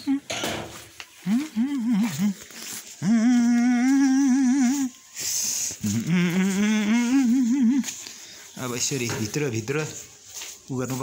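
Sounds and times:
person humming: 0.0s - 0.4s, 1.1s - 8.2s.

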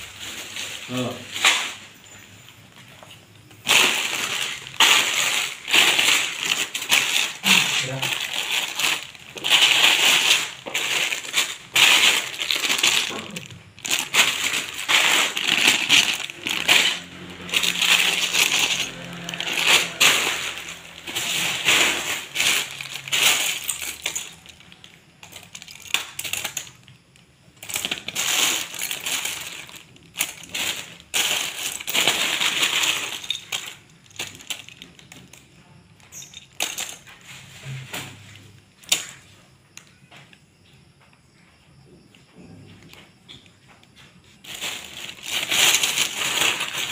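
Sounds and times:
plastic bags rustling: 0.0s - 39.3s, 44.0s - 46.9s
plastic bricks clattering: 0.0s - 40.4s, 42.4s - 46.9s.

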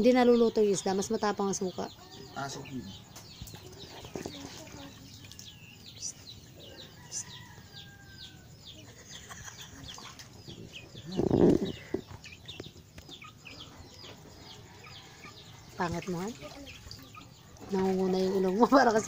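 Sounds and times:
chicks peeping: 0.2s - 19.0s
water splashing in a basin: 15.7s - 19.0s.

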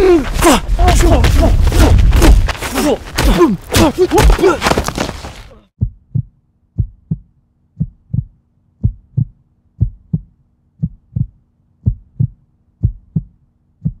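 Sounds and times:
heartbeat thumps: 5.8s - 14.0s.

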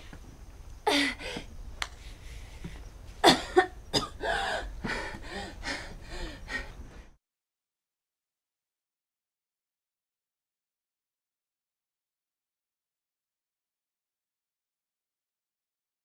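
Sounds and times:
girl grunting and gasping: 0.8s - 1.5s, 3.3s - 6.8s
girl breathing heavily: 0.8s - 3.0s, 4.2s - 7.2s.

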